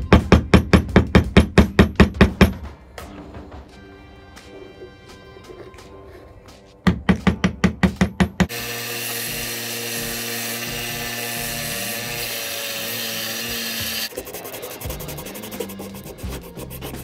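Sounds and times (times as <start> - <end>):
belt grinder grinding wood: 8.5 - 16.3
sandpaper rubbing on wood: 11.3 - 17.0.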